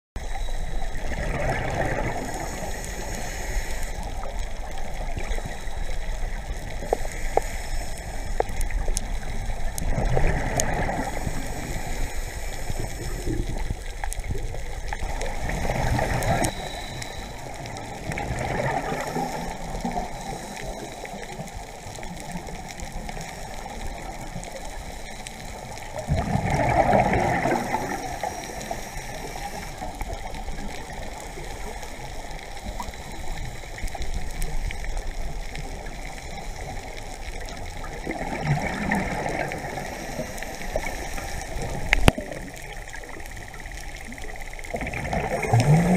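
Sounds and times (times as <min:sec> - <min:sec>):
diver's bubbles gurgling underwater: 0:00.2 - 0:03.3, 0:08.4 - 0:12.1, 0:12.7 - 0:20.4, 0:25.5 - 0:45.9
steady underwater hiss: 0:00.2 - 0:45.9.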